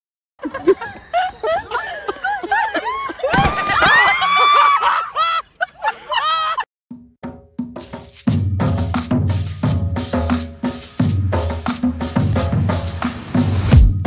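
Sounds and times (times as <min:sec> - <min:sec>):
people laughing: 0:00.4 - 0:06.7
people shouting: 0:03.3 - 0:05.3
high scream: 0:03.4 - 0:05.0.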